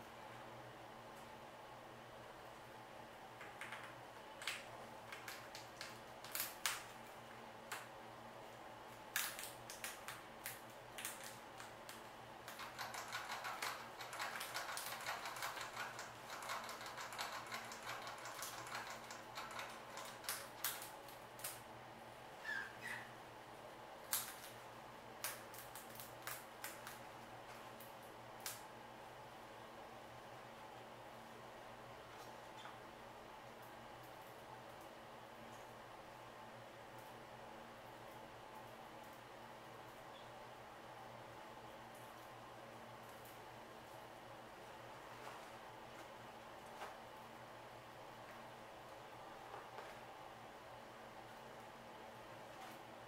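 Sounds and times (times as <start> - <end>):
rat squeaking: 22.4 - 23.2
rat rustling in bedding: 44.8 - 47.4.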